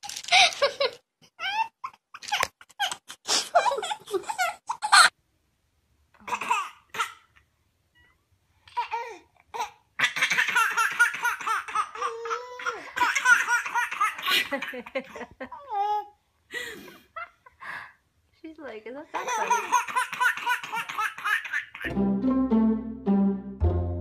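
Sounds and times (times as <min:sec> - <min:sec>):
baby laughing: 0:00.3 - 0:05.1, 0:08.8 - 0:16.1, 0:19.2 - 0:21.9.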